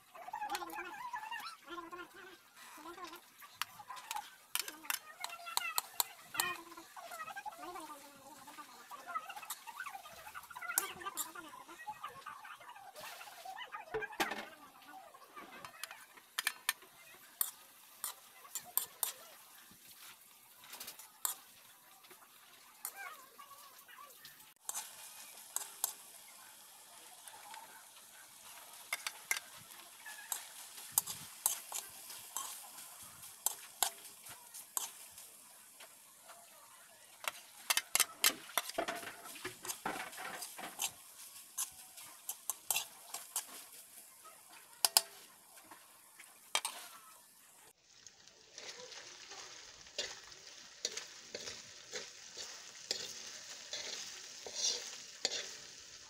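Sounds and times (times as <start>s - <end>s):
food sizzling: 0.0s - 56.0s
metal spatula scraping a wok: 2.6s - 12.0s, 15.4s - 21.6s, 24.5s - 35.3s, 37.2s - 45.8s, 46.5s - 47.1s, 48.5s - 56.0s.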